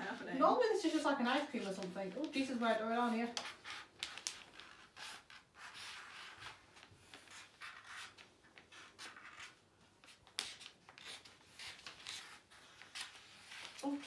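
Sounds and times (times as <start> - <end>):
marker pens scratching on paper: 0.0 - 14.0.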